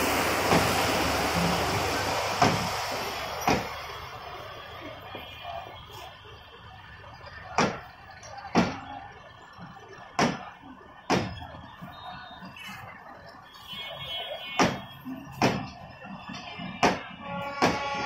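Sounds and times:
steady background noise: 0.0 - 18.0
train wheels clacking over rail joint: 3.4 - 3.8.

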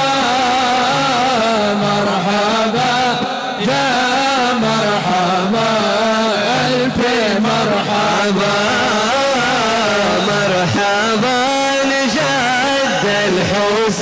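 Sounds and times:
men singing together: 0.0 - 14.0.

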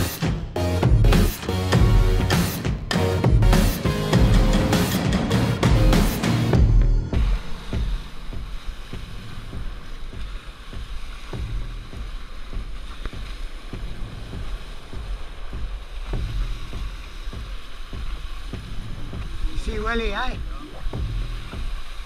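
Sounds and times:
spray hissing: 0.0 - 22.0
water rushing along hull: 3.6 - 22.0
boat hull slapping water: 4.8 - 22.0.

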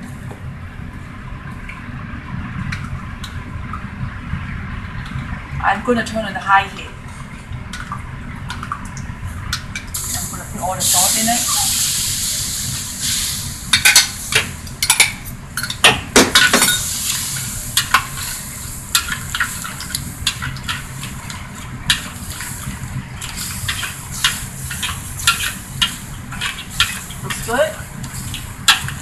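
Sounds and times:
sauce sizzling and bubbling: 7.0 - 29.0.

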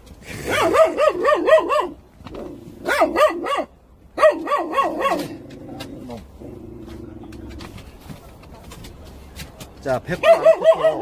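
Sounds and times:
dog barking: 0.4 - 2.0, 2.8 - 5.3, 10.2 - 11.0.

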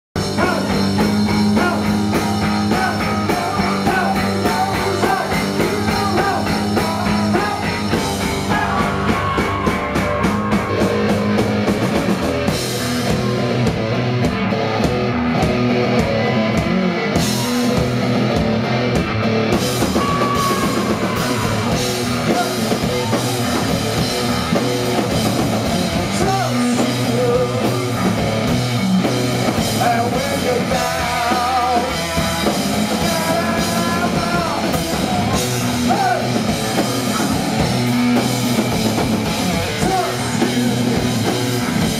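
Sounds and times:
bass guitar: 0.1 - 41.9
man singing lead: 0.2 - 10.8, 19.8 - 24.1, 25.6 - 28.6, 29.5 - 37.8, 39.2 - 41.9
drum kit: 0.2 - 41.9
electric guitar: 0.2 - 41.9.

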